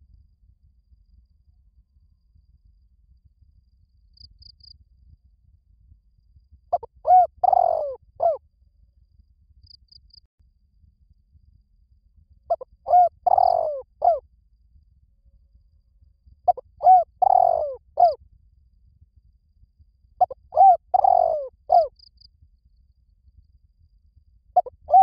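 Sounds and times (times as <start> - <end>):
dove cooing: 6.7 - 8.4, 12.5 - 14.2, 16.5 - 18.2, 20.2 - 21.9, 24.6 - 25.0.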